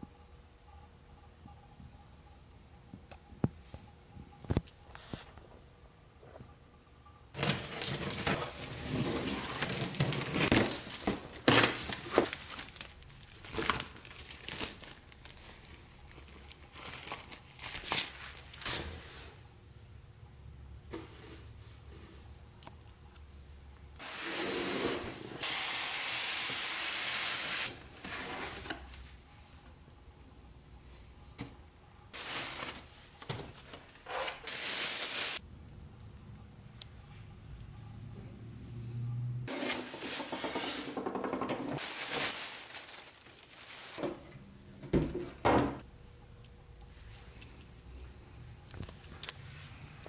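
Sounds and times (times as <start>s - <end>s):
plastic bag rustling: 7.4s - 19.4s, 32.2s - 35.4s, 39.5s - 44.0s.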